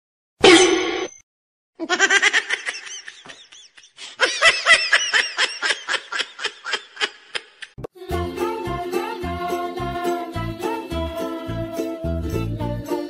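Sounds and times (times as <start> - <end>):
high-pitched laughter: 1.8 - 7.7.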